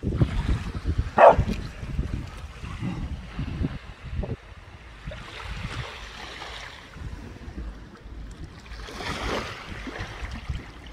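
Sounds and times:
wind rumbling on microphone: 0:00.0 - 0:10.9
waves washing against rocks: 0:05.0 - 0:10.9.

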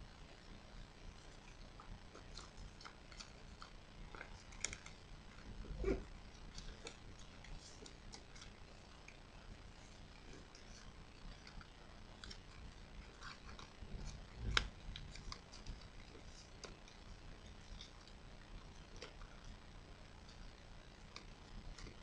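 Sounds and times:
paper crinkling while folded: 0:01.0 - 0:22.0.

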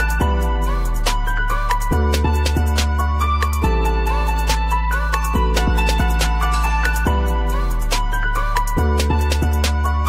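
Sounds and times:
melody: 0:01.4 - 0:09.3
percussion strikes: 0:04.4 - 0:10.0.

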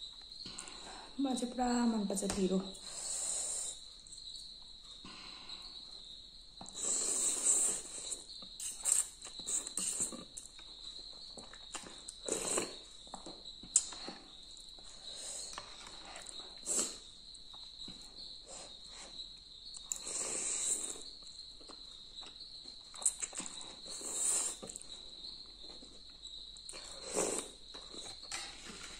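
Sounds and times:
noodles slurped and chewed: 0:06.7 - 0:10.5.

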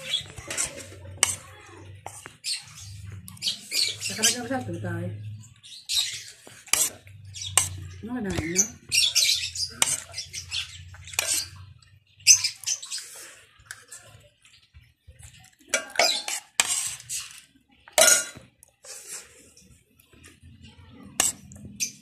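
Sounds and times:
utensil clinking and scraping a dish: 0:00.0 - 0:22.0.

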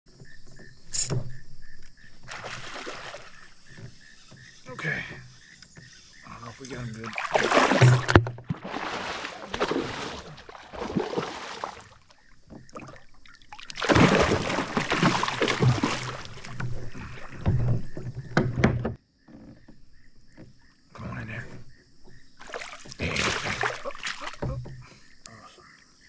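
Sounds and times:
fish thrashing and splashing water: 0:02.2 - 0:03.9, 0:06.6 - 0:18.4, 0:22.4 - 0:24.5.

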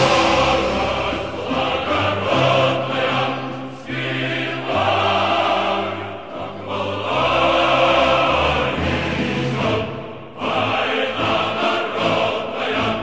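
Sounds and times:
choir singing slowly: 0:00.0 - 0:13.0.

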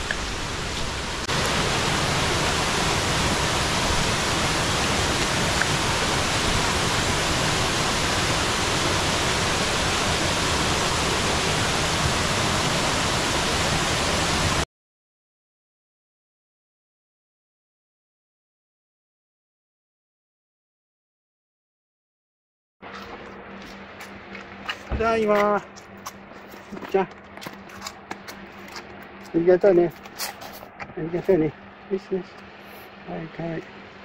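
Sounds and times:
waterfall rushing: 0:00.0 - 0:14.6.

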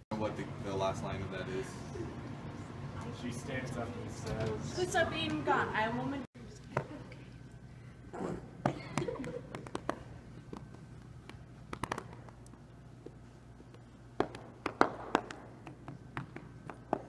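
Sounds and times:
hands slapping carpeted floor: 0:09.0 - 0:12.6, 0:13.7 - 0:17.0.

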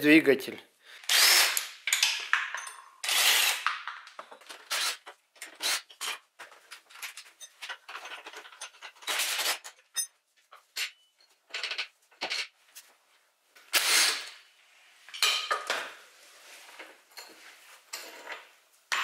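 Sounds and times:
metal bolts and tools clinking: 0:01.8 - 0:12.6, 0:17.1 - 0:19.0.

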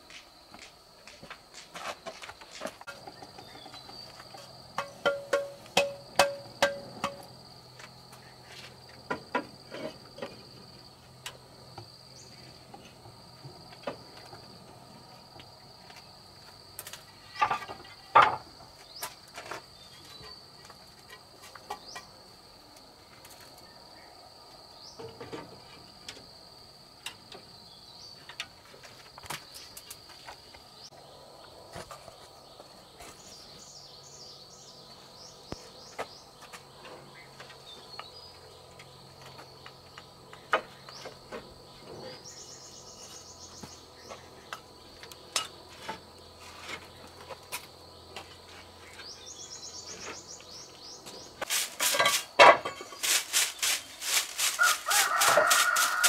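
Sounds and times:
clay roof tiles clacking: 0:01.1 - 0:10.5, 0:16.8 - 0:22.2, 0:51.0 - 0:56.0.

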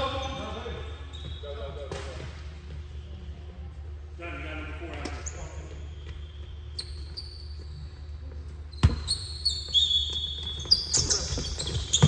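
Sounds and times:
sneakers squeaking on court: 0:00.0 - 0:03.2, 0:05.0 - 0:12.0
basketball bouncing on gym floor: 0:06.0 - 0:12.0.

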